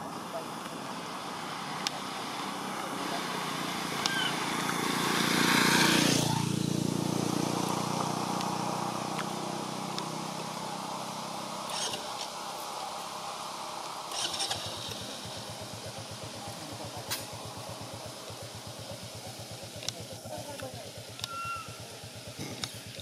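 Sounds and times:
vehicle passing by: 0.0s - 17.5s.

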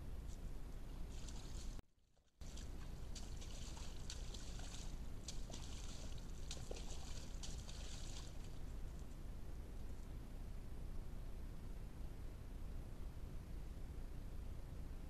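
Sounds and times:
deer splashing in mud: 1.1s - 1.8s, 2.4s - 8.9s
microphone hiss: 2.4s - 15.0s.

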